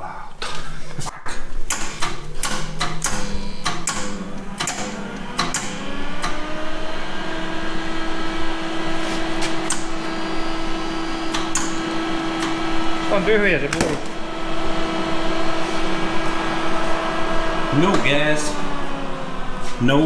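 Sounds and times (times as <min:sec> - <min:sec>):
wire-feed motor humming: 0:01.7 - 0:20.0.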